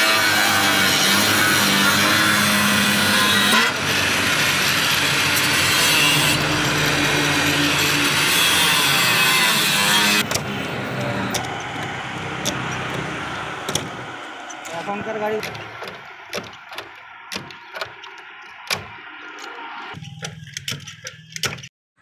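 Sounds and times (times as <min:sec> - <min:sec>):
angle grinder cutting metal: 0:00.0 - 0:20.0.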